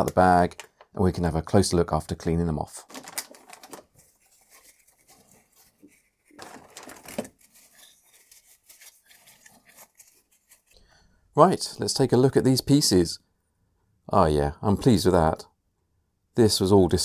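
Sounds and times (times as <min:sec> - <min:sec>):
plastic bag crinkling: 0:02.8 - 0:10.8
paper towel rustling: 0:02.9 - 0:10.8.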